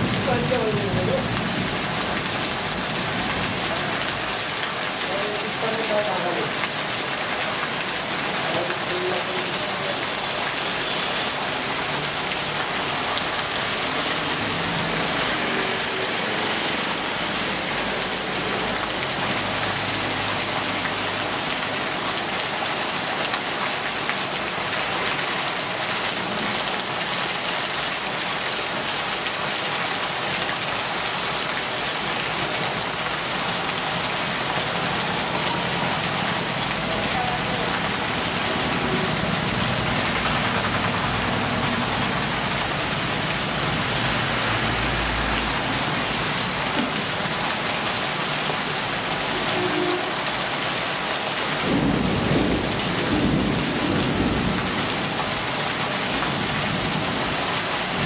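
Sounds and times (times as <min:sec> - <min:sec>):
heavy rain pouring: 0:00.0 - 0:58.0.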